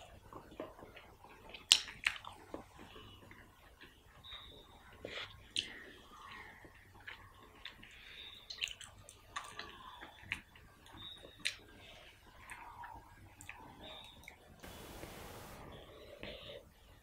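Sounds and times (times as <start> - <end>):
wet chewing and lip smacks: 0.0 - 4.0, 5.0 - 5.9, 6.6 - 14.5.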